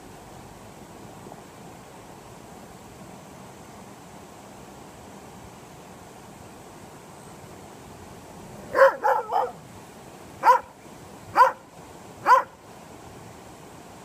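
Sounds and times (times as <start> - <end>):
dog barking: 8.7 - 9.6, 10.4 - 10.7, 11.4 - 11.6, 12.2 - 12.6.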